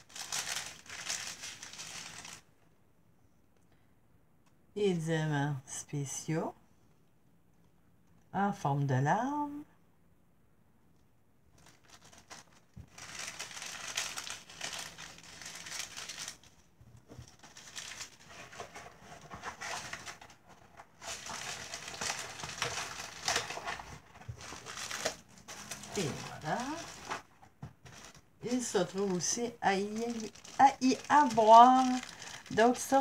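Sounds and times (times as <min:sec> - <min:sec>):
plastic bags crinkling: 0:00.0 - 0:02.5, 0:11.5 - 0:33.0.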